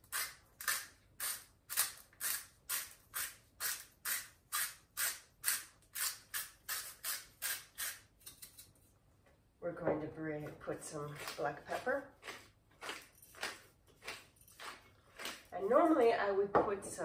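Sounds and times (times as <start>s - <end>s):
salt mill grinding: 0.0s - 8.7s.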